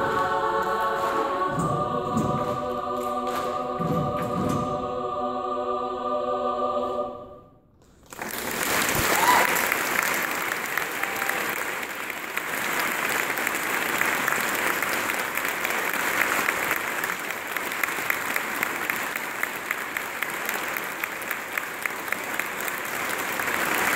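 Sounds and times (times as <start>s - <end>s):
audience applauding: 8.0s - 23.9s.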